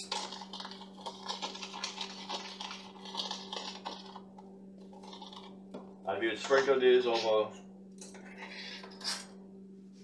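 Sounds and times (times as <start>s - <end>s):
spoon scraping plastic bowl: 0.0s - 4.3s, 4.9s - 5.6s, 6.4s - 7.4s, 8.2s - 9.3s
steady low hum: 0.0s - 10.0s.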